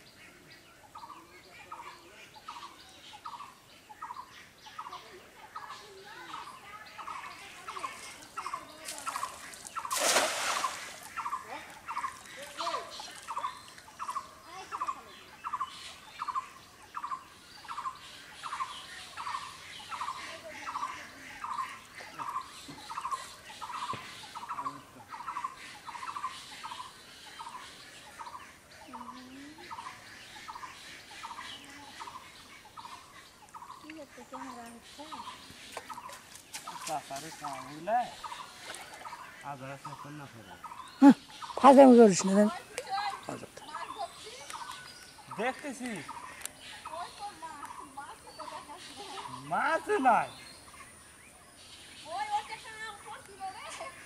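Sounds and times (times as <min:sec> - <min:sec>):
cast net splashing into water: 0:08.8 - 0:11.4.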